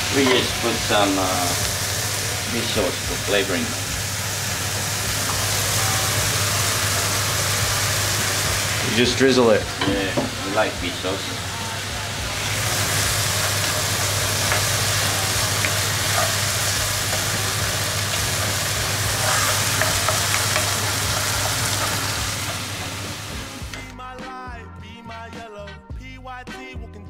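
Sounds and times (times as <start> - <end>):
chicken sizzling in frying pan: 0.0 - 23.9
music: 0.0 - 27.0
spatula scraping pan: 18.1 - 23.5.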